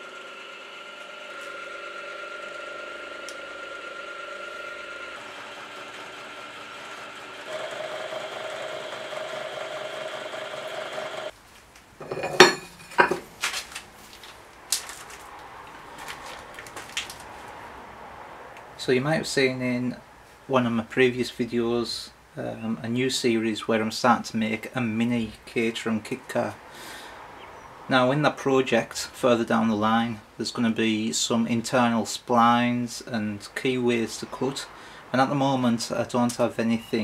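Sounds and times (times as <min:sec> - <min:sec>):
milling machine running: 0:00.0 - 0:11.3
metallic clanks of steel plates: 0:12.0 - 0:13.2.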